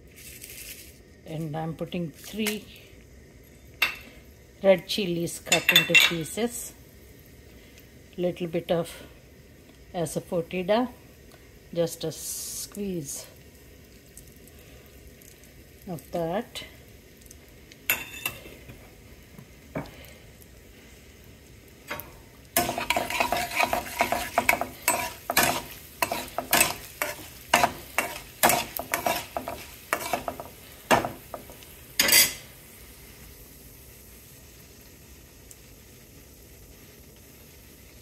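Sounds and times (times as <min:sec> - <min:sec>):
oil sizzling: 0:00.0 - 0:38.0
metal spatula scraping metal pan: 0:21.9 - 0:32.4.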